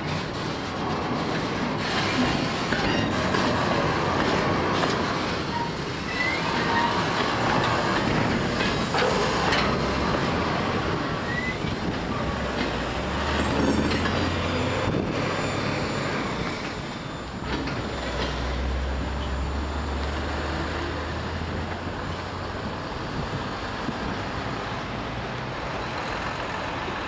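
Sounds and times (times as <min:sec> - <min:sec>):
freight train wheels clattering: 0:00.0 - 0:20.8.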